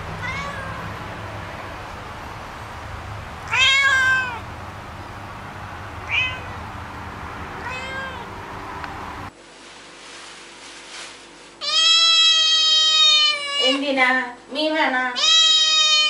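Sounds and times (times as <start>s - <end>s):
cat meowing: 0.2s - 0.9s, 3.4s - 4.5s, 6.0s - 6.7s, 7.6s - 8.4s, 11.6s - 13.8s, 15.2s - 16.0s.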